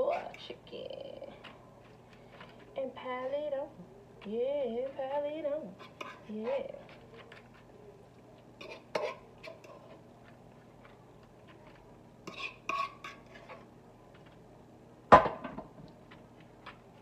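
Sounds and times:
fork scraping a skillet: 0.0s - 0.6s, 5.7s - 7.7s, 8.6s - 10.1s, 11.5s - 13.7s.

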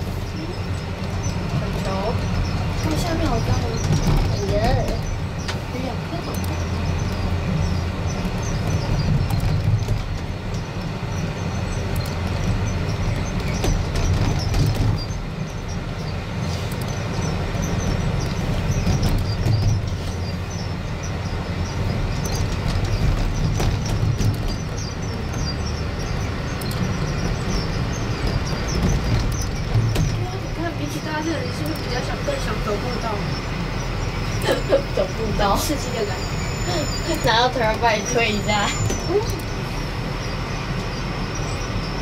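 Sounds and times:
monorail car rumbling: 0.0s - 42.0s.

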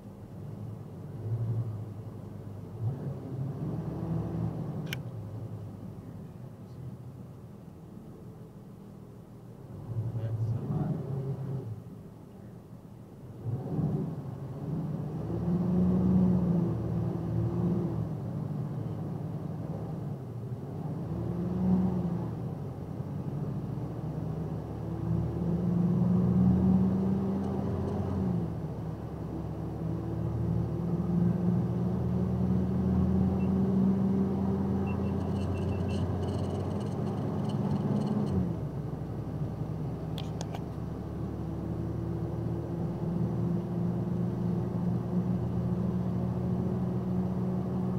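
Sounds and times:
truck engine accelerating: 20.7s - 47.9s.

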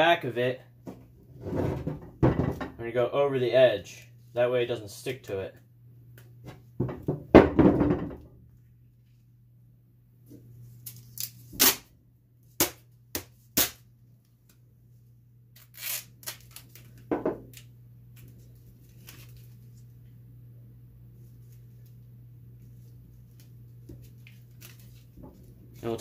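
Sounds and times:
duct tape ripping: 10.8s - 11.9s, 13.5s - 13.8s, 15.6s - 17.0s.

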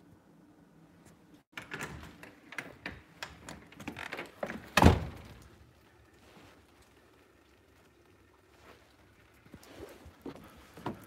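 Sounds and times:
door latch clicks and rattles: 1.5s - 5.2s.

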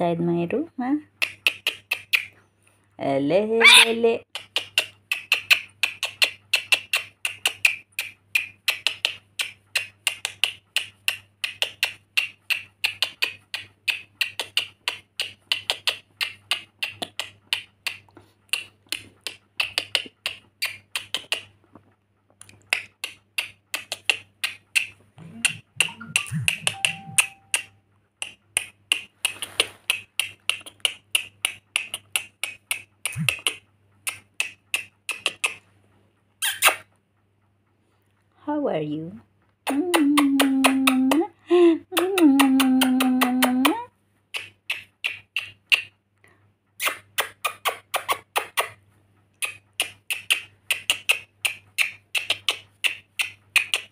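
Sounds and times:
parrot making sharp clicks: 3.6s - 21.6s, 22.4s - 35.6s, 42.0s - 45.9s, 46.8s - 48.8s, 49.4s - 53.9s
soft low thumps: 25.2s - 27.2s.

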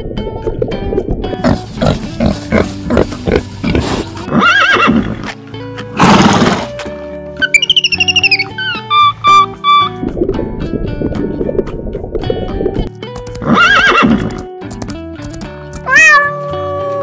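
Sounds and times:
background music: 0.0s - 17.0s
horse neighing: 3.7s - 5.2s, 13.4s - 14.3s
animal calls: 7.4s - 10.0s.

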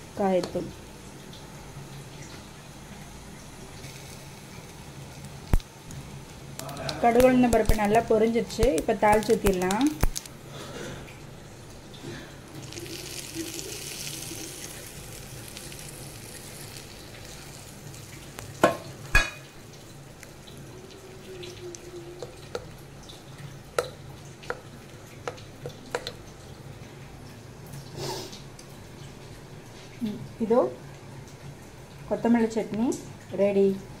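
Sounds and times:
hot oil sizzling: 0.0s - 34.0s.

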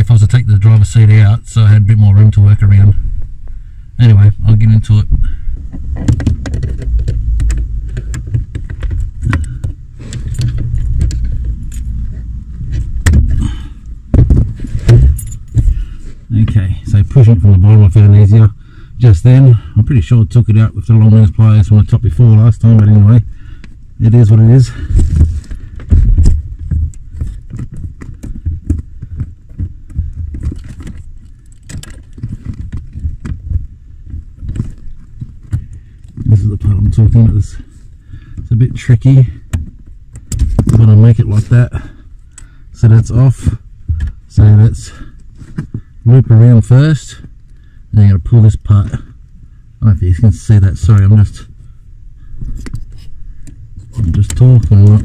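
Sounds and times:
hands bumping under dashboard: 5.1s - 13.5s, 14.1s - 15.9s, 24.9s - 37.0s
clicks and rattles of plastic and metal: 5.7s - 12.0s, 24.8s - 37.0s, 39.3s - 40.9s.

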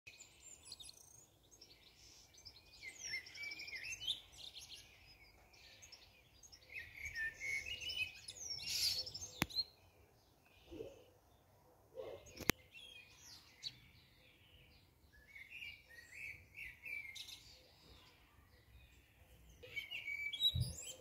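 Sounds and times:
songbird chirping and trilling: 0.1s - 21.0s.

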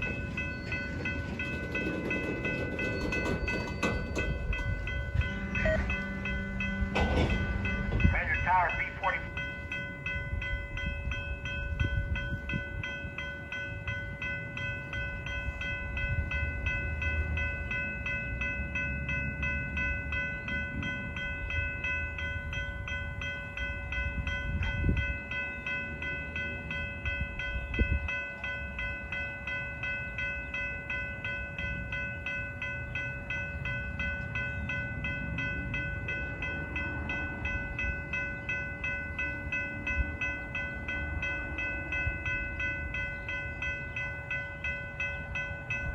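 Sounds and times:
train wheels rumbling on rail: 0.0s - 45.9s
high-pitched ringing tone: 2.9s - 18.2s.

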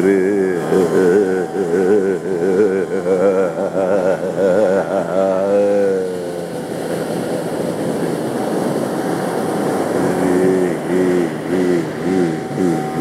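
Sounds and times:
man singing: 0.0s - 6.6s, 9.9s - 13.0s
ocean surf breaking: 0.0s - 13.0s
plucked tambura drone: 0.0s - 13.0s.

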